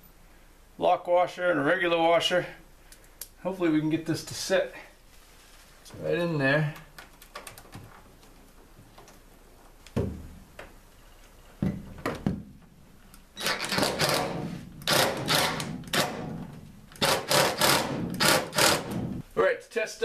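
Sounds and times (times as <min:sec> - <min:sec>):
impact driver rattling: 0:13.4 - 0:19.2.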